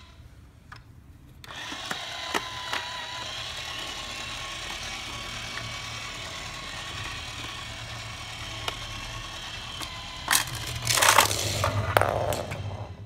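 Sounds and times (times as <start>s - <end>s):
toy motor and gear whir: 1.4s - 13.0s
plastic clacks and rattles: 10.3s - 12.7s.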